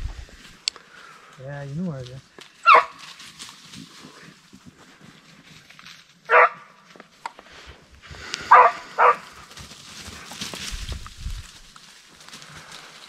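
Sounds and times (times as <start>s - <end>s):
dog barking: 2.6s - 3.0s, 6.3s - 6.6s, 8.5s - 9.2s.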